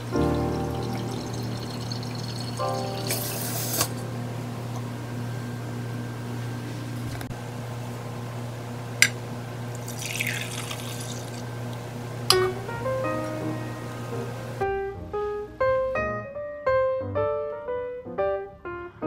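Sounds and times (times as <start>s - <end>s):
coffee pouring into mug: 0.0s - 4.0s, 9.8s - 11.5s
glass clink: 0.9s - 4.0s, 12.3s - 12.6s.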